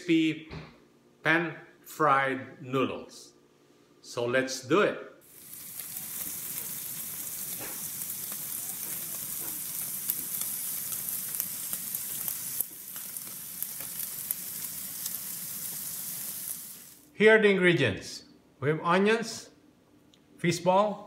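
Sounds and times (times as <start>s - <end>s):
sizzling hiss with crackles: 5.2s - 17.1s.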